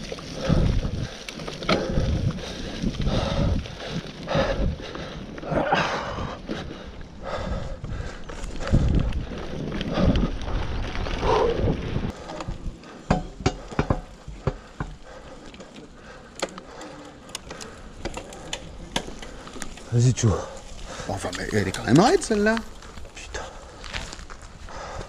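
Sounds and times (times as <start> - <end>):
bike parts rattling: 0.0 - 6.8, 7.7 - 24.6
wind buffeting microphone: 0.0 - 15.1.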